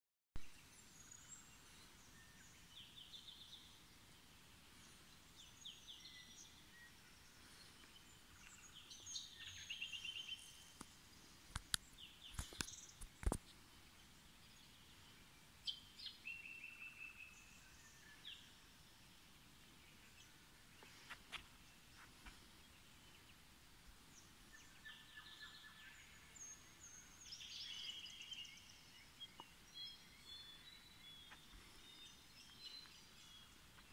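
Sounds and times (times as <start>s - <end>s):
birds chirping and trilling: 0.5s - 33.9s
sharp clicks: 11.5s - 13.5s.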